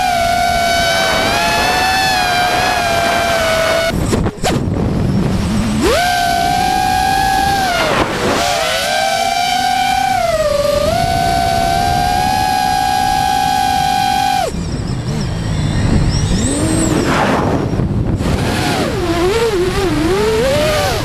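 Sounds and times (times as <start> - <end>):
quadcopter motors whining: 0.0 - 21.0.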